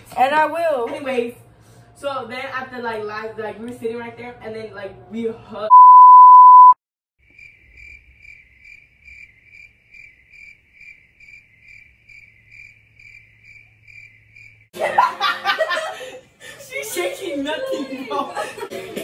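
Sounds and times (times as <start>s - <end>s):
test tone beep: 5.7s - 6.8s
cricket chirps: 7.2s - 14.7s.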